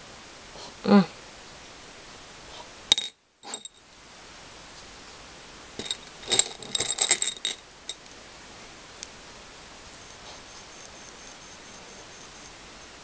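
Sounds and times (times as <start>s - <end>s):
beads clinking on glass dish: 2.9s - 3.8s, 5.8s - 8.0s.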